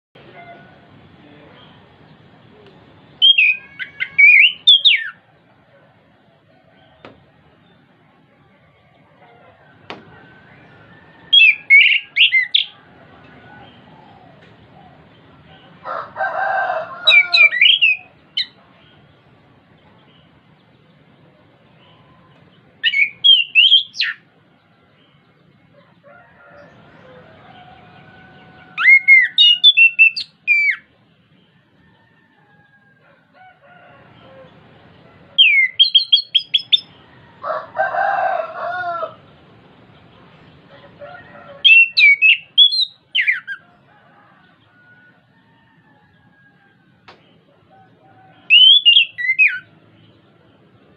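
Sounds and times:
lower coarse bird call: 2.5 - 5.3, 8.7 - 15.8, 16.8 - 19.1, 21.7 - 24.3, 26.6 - 30.9, 35.4 - 37.5, 41.3 - 45.1, 47.3 - 49.8
thrush whistling song: 3.1 - 5.2, 10.1 - 12.8, 17.1 - 18.6, 22.8 - 24.2, 28.8 - 30.9, 35.4 - 37.0, 41.6 - 43.6, 48.5 - 49.7.

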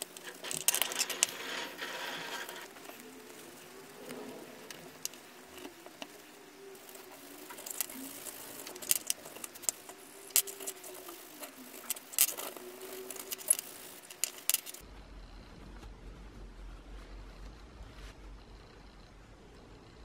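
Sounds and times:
small metal parts clicking: 0.0 - 14.8.

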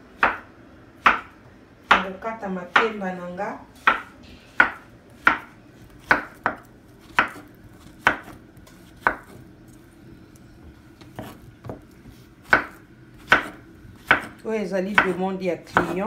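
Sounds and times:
knife slicing on wooden board: 11.0 - 14.4.

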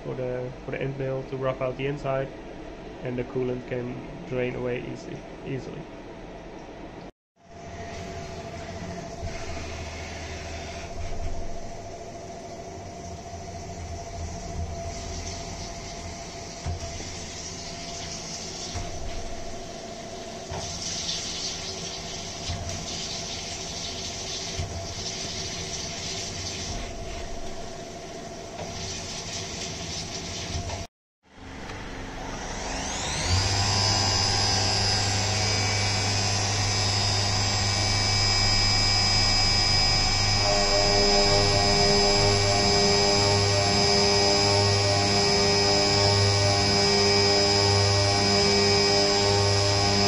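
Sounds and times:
mill spindle whining: 7.5 - 29.2, 30.2 - 50.0
coolant spray hissing and splashing: 13.4 - 27.2, 28.6 - 30.8.

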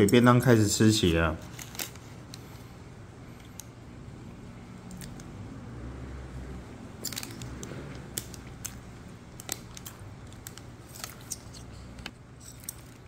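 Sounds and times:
lunchbox and utensils clicking: 7.0 - 8.8.

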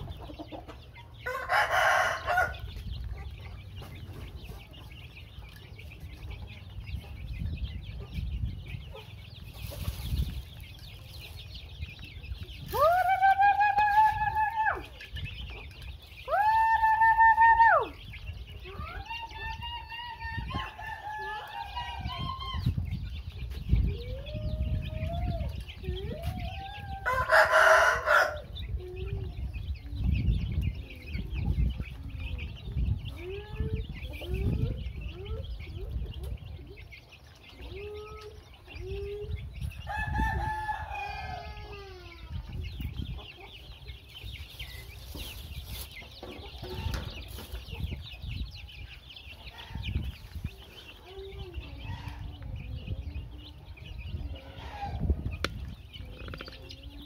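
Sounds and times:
chicks cheeping: 0.0 - 57.0
harsh chick call: 12.4 - 29.6
beaks pecking feed dish: 55.3 - 56.8.

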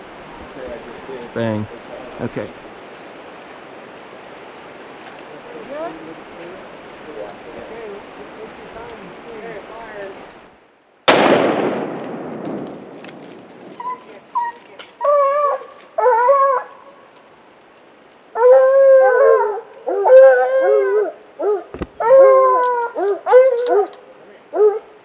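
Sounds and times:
gunshot echo: 11.1 - 13.7
hounds baying and howling: 13.7 - 17.1, 18.3 - 25.0.

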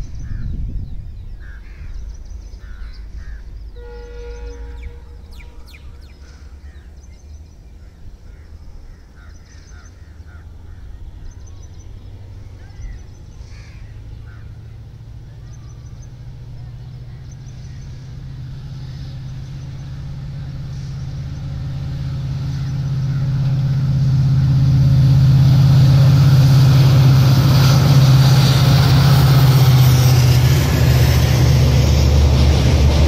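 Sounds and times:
distant train rumbling: 0.0 - 33.0
birds chirping: 0.1 - 23.6.

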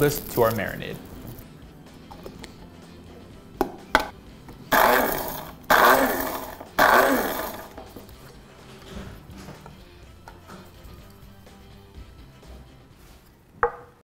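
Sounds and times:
electric spice grinder whirring: 4.7 - 8.0.

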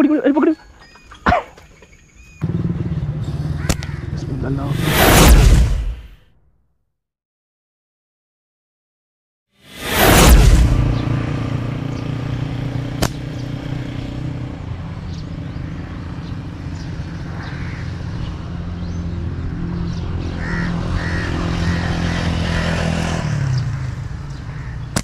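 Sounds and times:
vehicle engine running: 2.4 - 5.0
sharp click: 3.7 - 3.9, 13.0 - 13.2.

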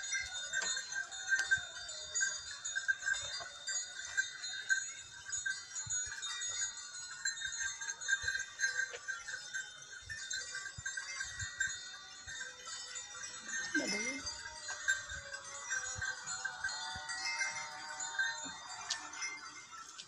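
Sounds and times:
small bells tinkling: 0.0 - 20.0.

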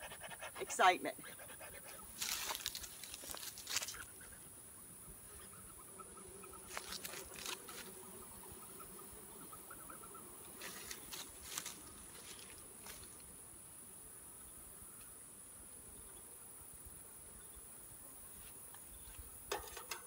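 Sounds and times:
honeybees humming: 0.0 - 19.5
high insect whine: 2.1 - 19.8.

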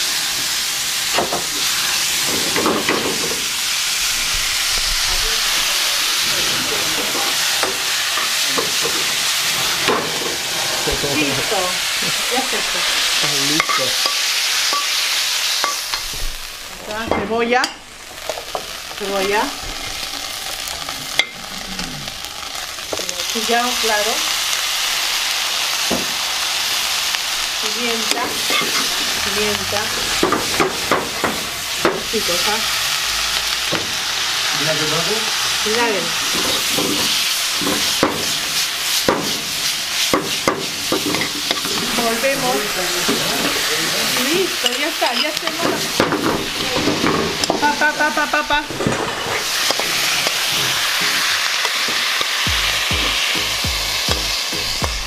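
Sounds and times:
meat sizzling in a hot pan: 0.0 - 55.0
utensil scraping a pan: 48.7 - 52.1.

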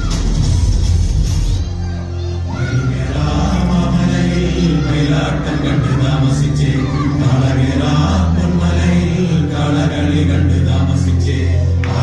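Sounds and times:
music with pulsing bass beat: 0.0 - 1.8.

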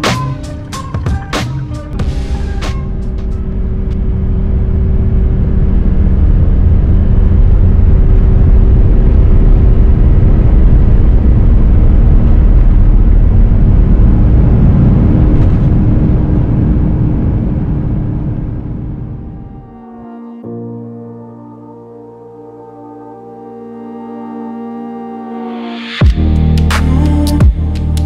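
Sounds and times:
jet engines at takeoff in cabin: 2.0 - 20.1.

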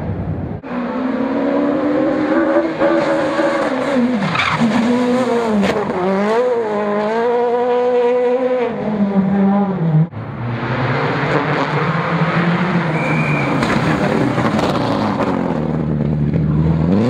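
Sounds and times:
rally car engine at high revs: 0.6 - 17.0.

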